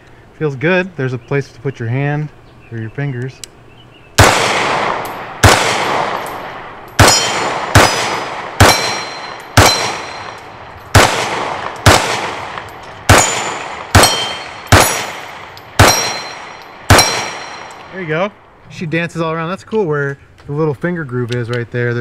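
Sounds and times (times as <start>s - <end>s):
handgun shots: 4.2s - 17.9s
steel targets ringing: 4.8s - 11.0s, 12.6s - 17.9s.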